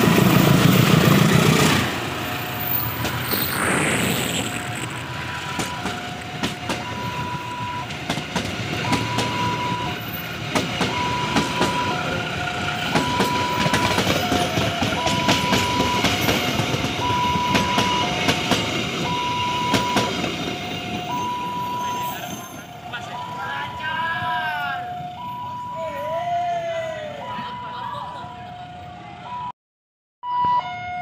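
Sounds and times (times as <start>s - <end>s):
two-tone electronic warning alarm: 5.0s - 25.8s, 27.2s - 29.5s, 30.2s - 31.0s
train wheels clacking over rail joints: 5.4s - 21.3s.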